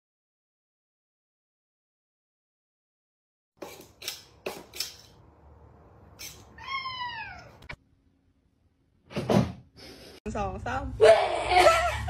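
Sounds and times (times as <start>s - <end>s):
cat meowing: 6.5s - 7.8s.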